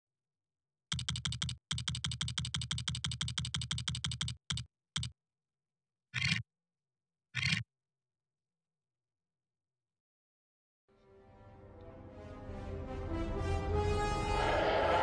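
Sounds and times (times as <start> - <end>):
rapid clicks: 0.9 - 5.2.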